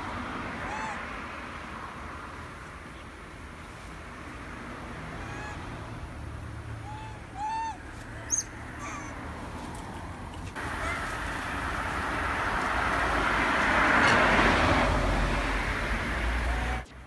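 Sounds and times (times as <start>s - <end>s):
highway traffic hum: 0.0s - 17.0s
monkeys cooing: 6.8s - 9.2s
monkey high squeak: 6.9s - 9.1s.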